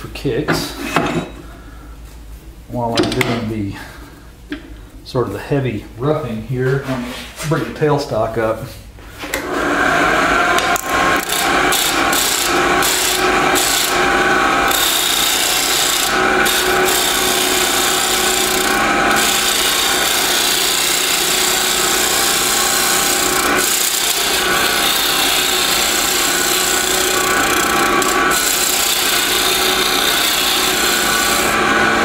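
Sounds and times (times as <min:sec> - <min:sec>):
lathe motor hum: 0:09.4 - 0:32.0
gouge scraping spinning wood: 0:10.1 - 0:32.0.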